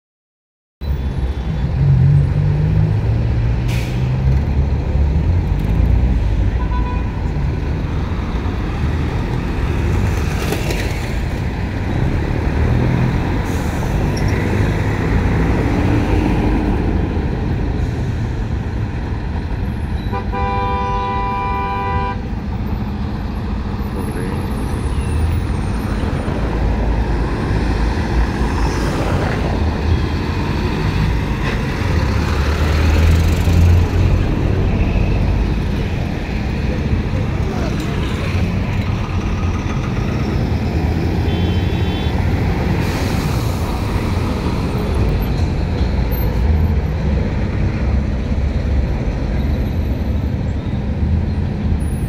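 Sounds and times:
traffic engine rumble: 0:00.8 - 0:52.0
vehicle horn honk: 0:20.0 - 0:22.2, 0:41.3 - 0:42.2.

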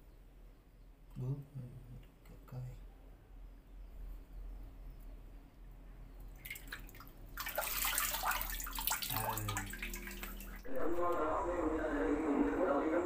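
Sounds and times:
water splashing in a tank: 0:06.4 - 0:10.7
water running off: 0:07.4 - 0:10.7.

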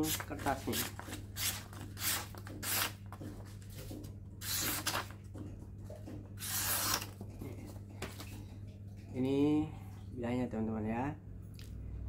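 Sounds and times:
knife slicing paper: 0:00.0 - 0:03.0, 0:04.4 - 0:05.1, 0:06.4 - 0:07.2.

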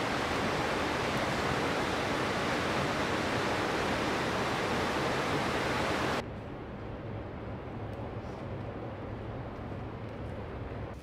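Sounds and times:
water rushing over rocks: 0:00.0 - 0:06.2.

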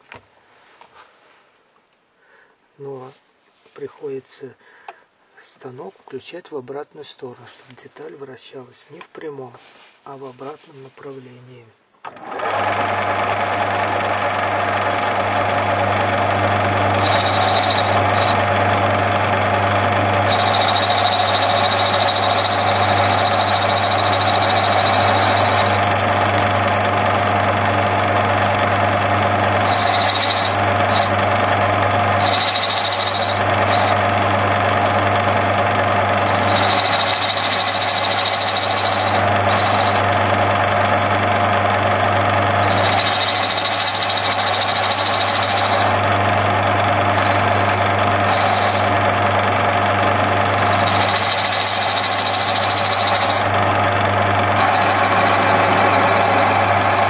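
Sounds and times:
metal lathe humming: 0:12.3 - 0:57.0
high-pitched cutting tool squeal: 0:16.8 - 0:18.9, 0:20.1 - 0:26.0, 0:29.4 - 0:34.3, 0:36.0 - 0:40.3, 0:42.5 - 0:46.1, 0:47.0 - 0:49.2, 0:50.1 - 0:57.0.

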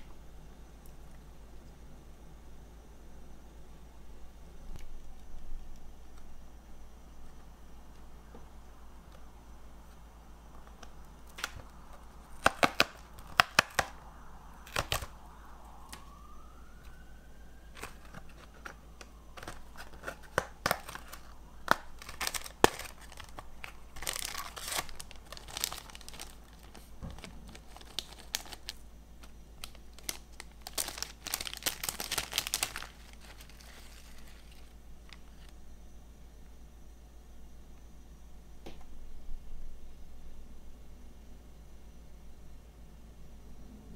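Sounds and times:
foil pouch crinkling: 0:10.6 - 0:14.0, 0:17.7 - 0:35.5.

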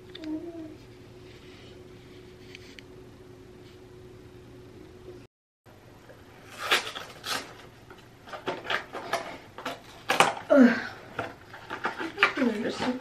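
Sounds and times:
cardboard box ripping: 0:06.5 - 0:07.6.

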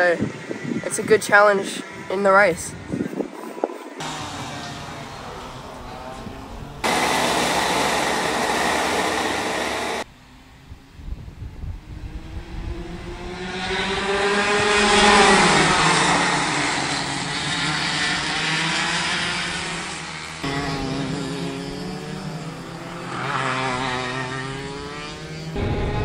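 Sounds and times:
go-kart engines passing: 0:00.0 - 0:02.8, 0:03.8 - 0:10.7, 0:11.8 - 0:26.0
loud rushing noise: 0:04.0 - 0:10.1.

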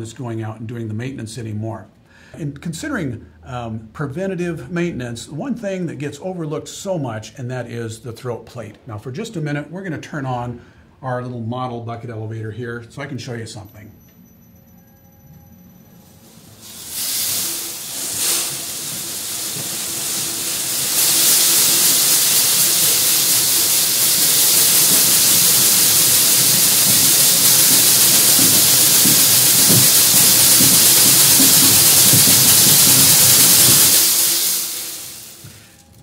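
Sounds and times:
granular product hissing: 0:15.9 - 0:35.8
buckets rattling: 0:16.6 - 0:35.5.

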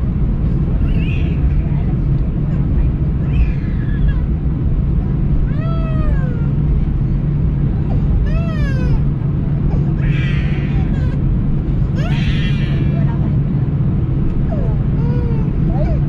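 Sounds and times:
airplane cabin drone: 0:00.0 - 0:16.0
high wailing cries: 0:10.0 - 0:11.2, 0:12.0 - 0:13.1.

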